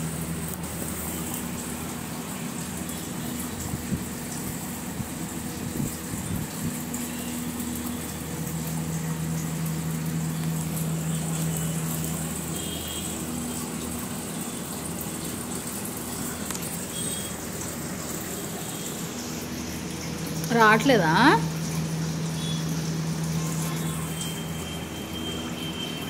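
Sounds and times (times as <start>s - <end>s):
machine hum: 0.0s - 26.0s.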